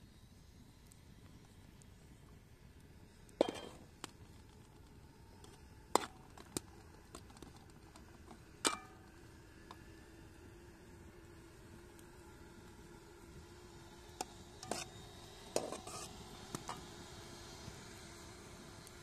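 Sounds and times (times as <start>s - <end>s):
metal spatula scraping frying pan: 14.6s - 14.9s, 15.6s - 16.1s.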